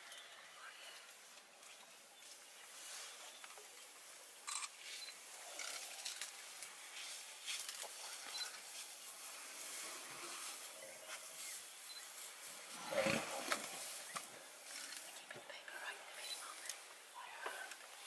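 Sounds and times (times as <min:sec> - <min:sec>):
faint rustling: 0:00.0 - 0:18.0
high focus beeps: 0:11.9 - 0:12.1, 0:16.2 - 0:16.4.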